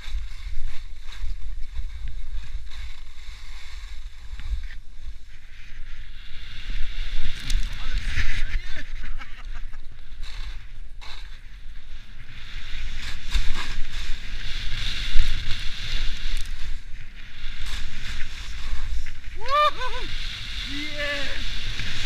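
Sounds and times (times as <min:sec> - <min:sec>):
skis scraping over snow: 0:00.0 - 0:22.0
wind rushing over microphone: 0:00.0 - 0:22.0.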